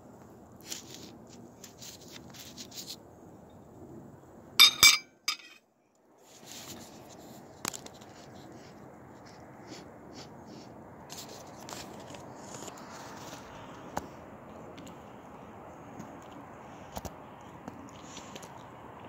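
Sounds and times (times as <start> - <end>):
sharp ringing clinks: 4.6 - 5.6.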